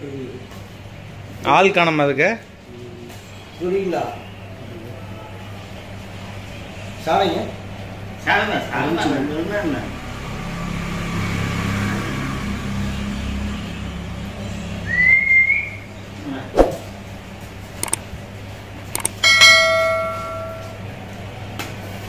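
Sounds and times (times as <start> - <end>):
sharp clicks: 17.8 - 18.0, 19.0 - 19.2
bell-like ding: 19.0 - 20.8.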